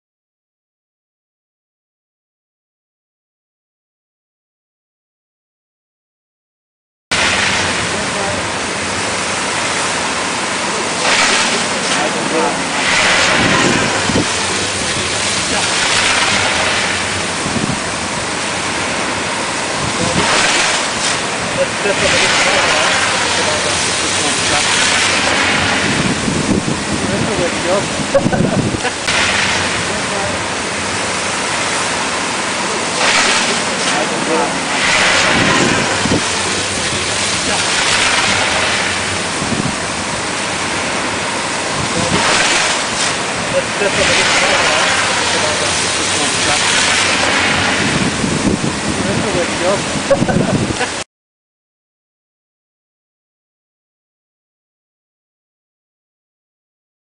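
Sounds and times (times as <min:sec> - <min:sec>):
water spray hissing: 0:07.2 - 0:51.0.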